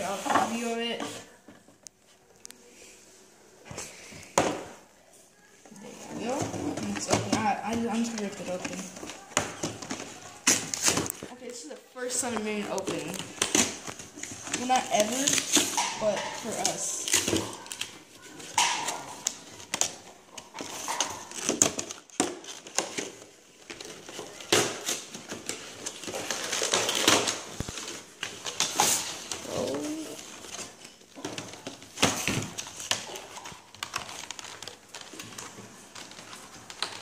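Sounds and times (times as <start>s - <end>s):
cardboard and plastic rustling: 0.0s - 37.0s.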